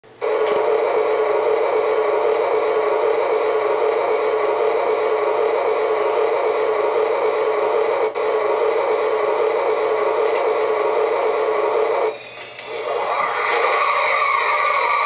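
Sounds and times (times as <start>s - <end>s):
static-like storm hiss: 0.1s - 15.0s
sweeping tones: 8.7s - 15.0s.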